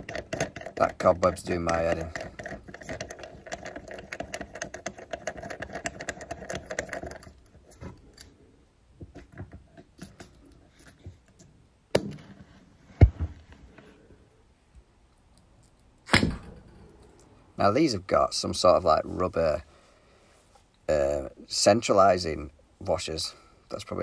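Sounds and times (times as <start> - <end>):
metallic clicking of tap fittings: 0.0 - 7.4.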